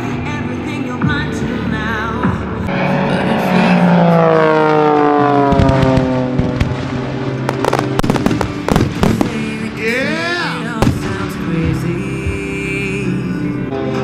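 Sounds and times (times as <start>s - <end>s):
model plane engine passing by: 2.7s - 7.2s
firework bangs and cracks: 5.4s - 9.6s.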